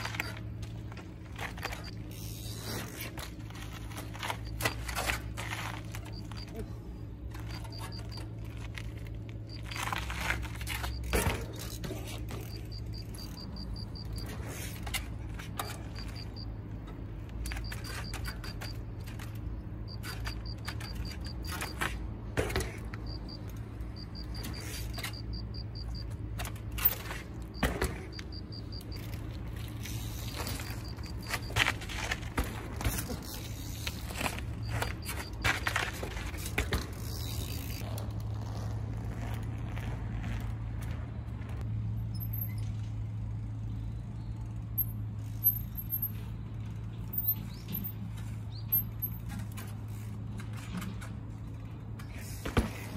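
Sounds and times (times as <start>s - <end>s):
bike freehub ticking: 0.0s - 6.6s, 7.3s - 41.0s
bike knocks and scrapes: 0.0s - 43.5s, 44.8s - 52.9s.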